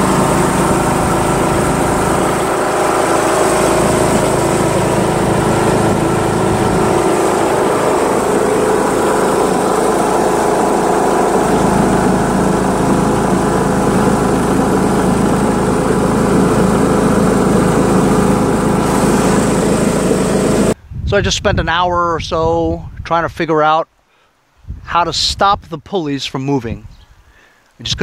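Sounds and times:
lawn tractor engine running: 0.0 - 20.8.

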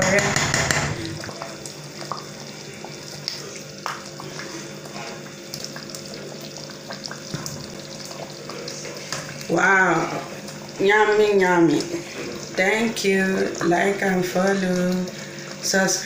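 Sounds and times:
spoon knocking on pot: 0.0 - 1.1.

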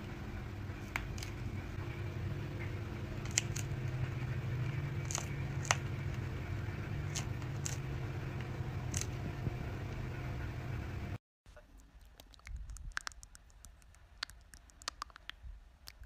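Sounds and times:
steady low hum: 0.0 - 16.0
chinchilla crunching food: 11.7 - 16.0.

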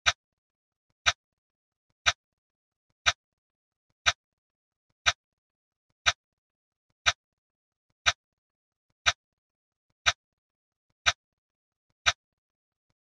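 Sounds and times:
sharp clock-like ticks: 1.0 - 1.2, 2.0 - 2.2, 3.0 - 3.2, 4.0 - 4.2, 5.0 - 5.2, 6.0 - 6.2, 7.0 - 7.2, 8.0 - 8.2, 9.0 - 9.2, 10.0 - 10.2, 12.0 - 12.2.

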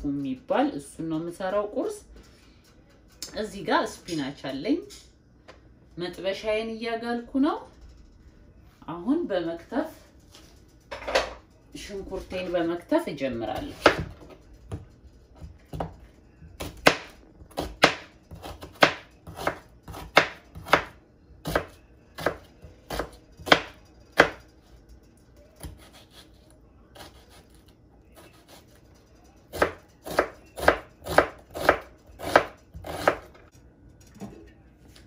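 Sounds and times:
knife chopping on cutting board: 16.6 - 24.4, 29.5 - 33.3.

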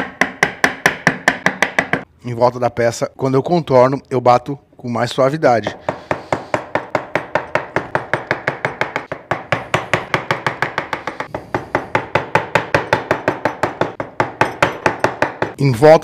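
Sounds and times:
mallet tapping wood chisel: 0.0 - 2.1, 5.7 - 15.6.

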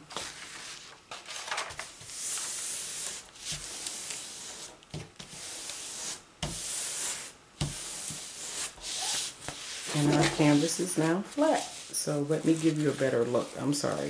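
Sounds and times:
hand rubbing canvas: 2.0 - 14.0.

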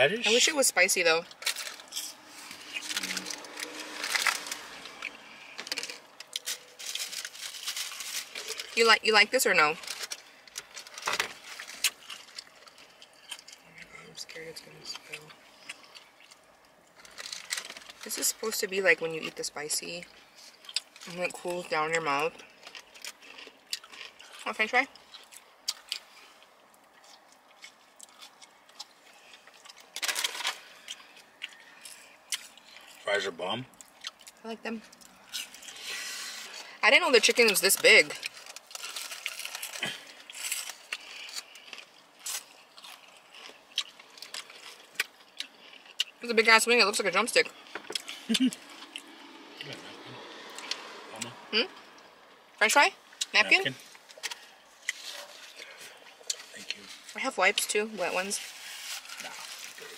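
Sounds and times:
food packaging rustling: 1.2 - 8.8, 9.7 - 13.6, 15.6 - 18.3, 25.0 - 33.0, 33.9 - 46.0, 53.7 - 57.2, 58.2 - 59.9
crunchy chewing: 1.3 - 8.8, 9.8 - 14.1, 14.8 - 18.1, 20.0 - 21.2, 22.2 - 33.1, 33.7 - 36.8, 38.1 - 46.2, 47.4 - 52.1, 53.0 - 57.2, 58.4 - 59.9.

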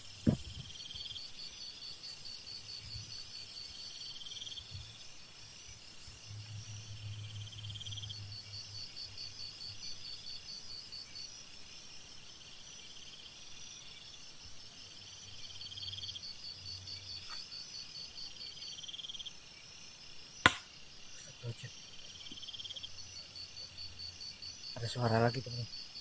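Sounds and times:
night insects chirping: 0.0 - 26.0
sharp knock: 20.4 - 20.7.

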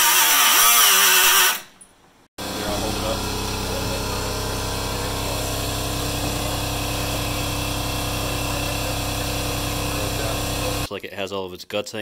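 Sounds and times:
power tool cutting metal: 0.0 - 1.7, 2.4 - 10.9.

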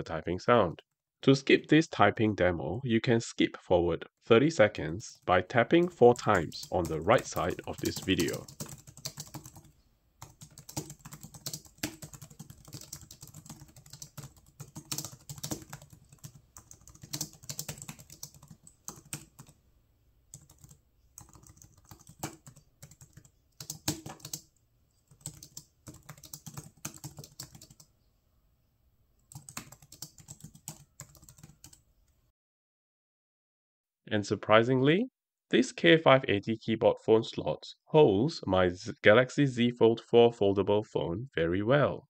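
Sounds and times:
keyboard typing: 5.8 - 19.6, 20.3 - 27.9, 29.2 - 31.8.

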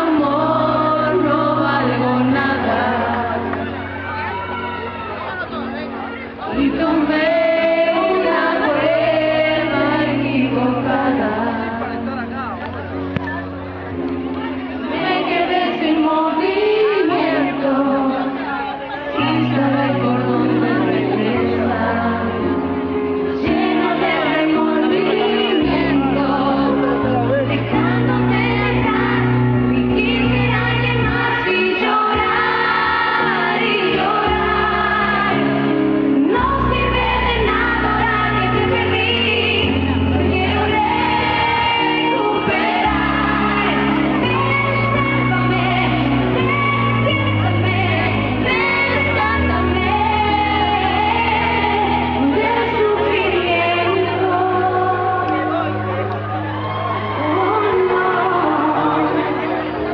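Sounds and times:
woman singing: 0.0 - 3.8, 6.4 - 12.0, 14.8 - 18.5, 19.2 - 22.7, 23.3 - 55.6, 57.0 - 59.9
steady bass line: 19.3 - 59.9.

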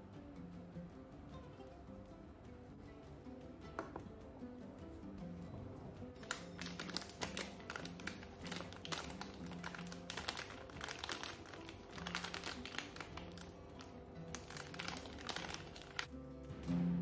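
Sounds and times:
background music: 0.0 - 17.0
packet crinkling: 6.2 - 16.1.

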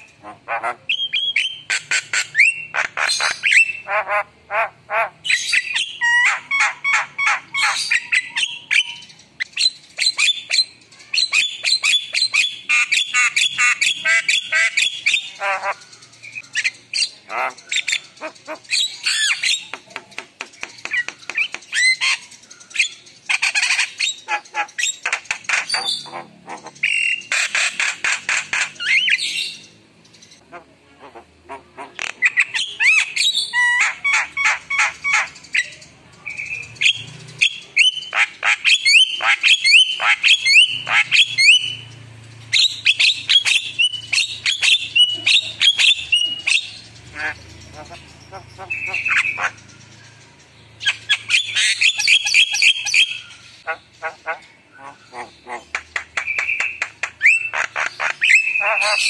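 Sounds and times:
myna clicking chatter and whistles: 14.4 - 29.2, 31.2 - 42.0, 55.2 - 59.0.

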